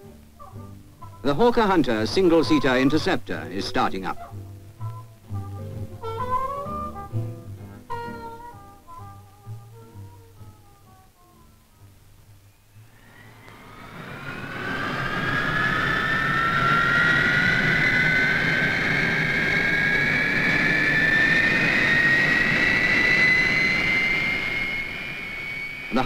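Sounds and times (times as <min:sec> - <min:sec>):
jet engine whine rising: 0:01.2 - 0:04.2, 0:12.5 - 0:26.0
rushing noise: 0:12.7 - 0:26.0.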